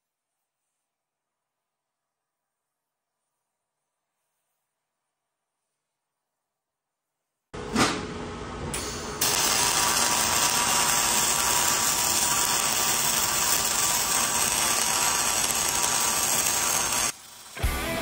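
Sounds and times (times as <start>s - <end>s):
welding arc hissing: 9.2s - 18.0s.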